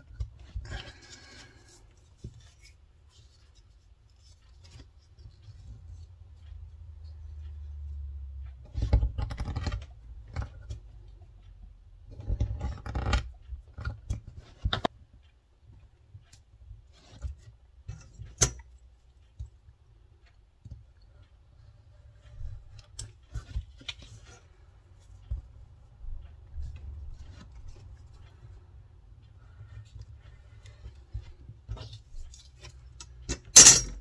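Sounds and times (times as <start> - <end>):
metal tools clicking: 33.0 - 34.0.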